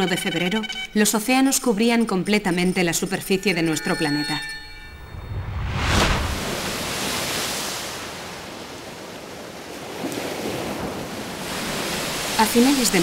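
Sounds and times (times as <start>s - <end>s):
ocean waves washing: 4.8s - 13.0s.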